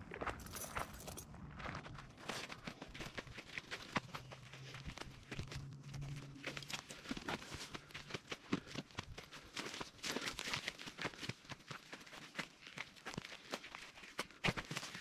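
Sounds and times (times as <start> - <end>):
low steady hum: 0.0 - 10.2.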